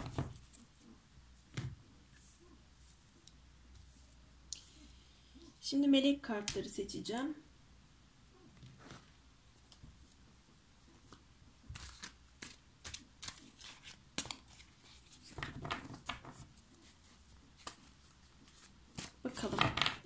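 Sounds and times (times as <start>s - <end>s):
cards clicking and rustling: 11.1s - 16.4s.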